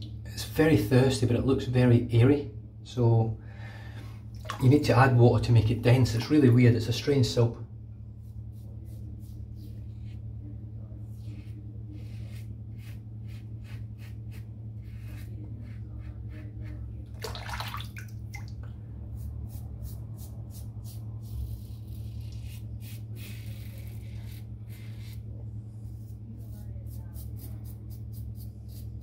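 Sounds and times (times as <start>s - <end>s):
razor scraping stubble: 11.2s - 16.9s, 19.2s - 25.3s.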